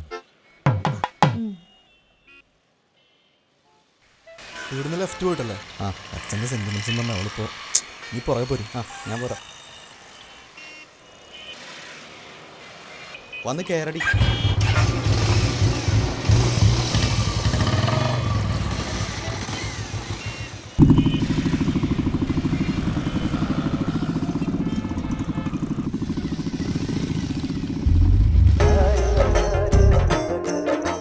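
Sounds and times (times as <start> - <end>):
small motorcycle engine running: 4.5 - 10.6, 14.2 - 28.6.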